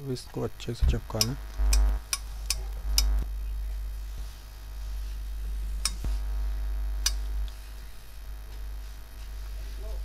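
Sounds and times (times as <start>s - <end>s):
steam iron low rumble: 0.8s - 10.0s
sharp clicks: 1.1s - 3.3s, 7.0s - 7.6s.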